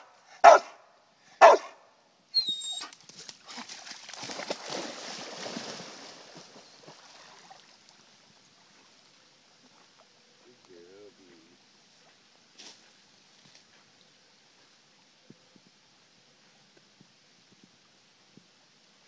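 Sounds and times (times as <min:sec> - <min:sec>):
dog barking: 0:00.0 - 0:00.8, 0:01.4 - 0:01.8
dog swimming splashing: 0:03.1 - 0:07.8.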